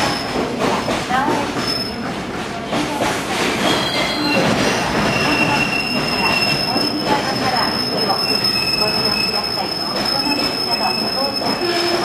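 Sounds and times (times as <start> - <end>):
freight train rumbling past: 0.0 - 12.0
high-pitched wheel squeal: 3.7 - 12.0.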